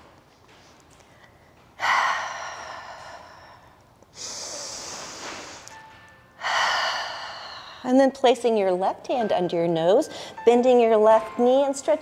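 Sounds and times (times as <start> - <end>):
woman breathing deeply: 1.0 - 5.8, 6.4 - 8.0, 10.1 - 10.4.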